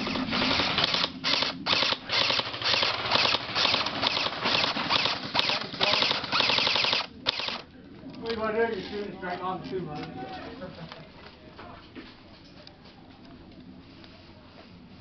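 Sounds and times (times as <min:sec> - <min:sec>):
airsoft rifle firing full auto: 0:00.4 - 0:07.6.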